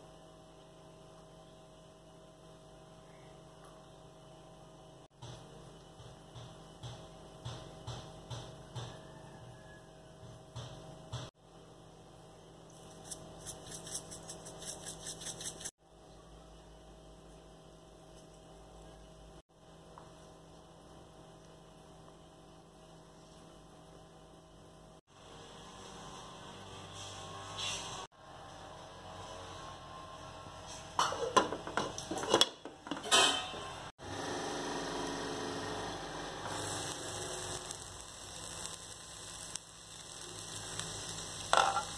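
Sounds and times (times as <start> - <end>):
electrical hum: 33.6 - 41.9
steady hiss: 36.4 - 41.9.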